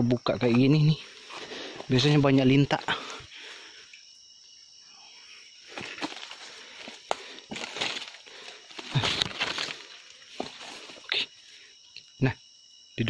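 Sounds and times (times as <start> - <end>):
high insect whine: 0.0 - 13.0
footsteps crunching through leaves: 5.7 - 11.0.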